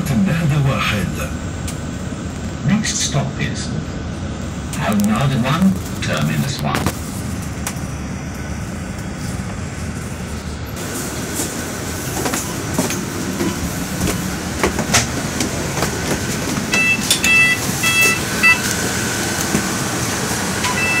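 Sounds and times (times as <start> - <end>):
bus cabin and engine noise: 0.0 - 21.0
footsteps on stairs: 10.8 - 17.3
short high electronic beeps: 16.8 - 18.7, 20.7 - 21.0.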